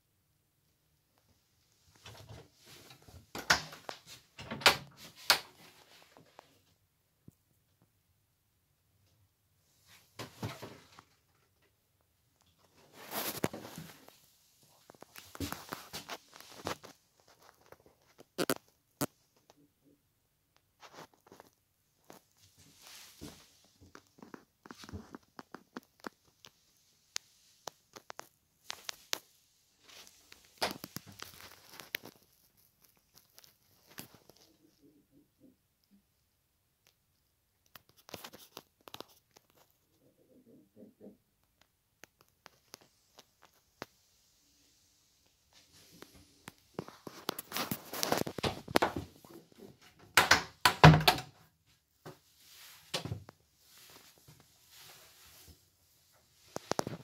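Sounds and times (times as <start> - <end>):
wooden door clicks and knocks: 50.2 - 51.3.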